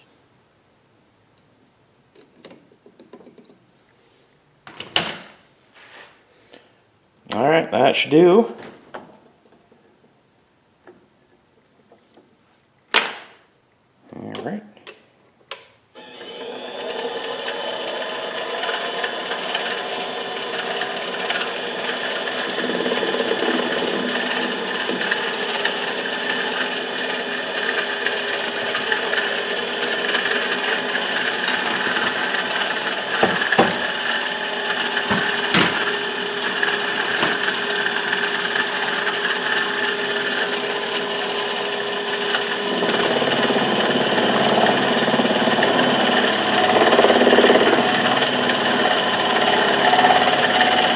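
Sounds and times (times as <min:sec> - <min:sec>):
lathe motor whining: 0:16.0 - 0:50.9
cutting tool scraping metal: 0:18.8 - 0:50.9.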